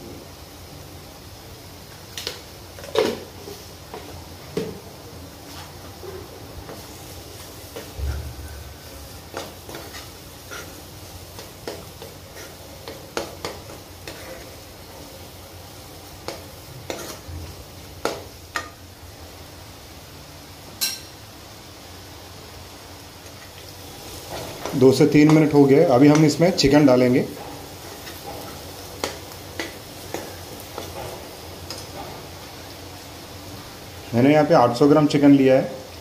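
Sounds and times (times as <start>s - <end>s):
paste sizzling: 1.9s - 19.6s, 22.3s - 36.0s
spoon scraping a pan: 8.8s - 14.6s, 16.2s - 17.3s.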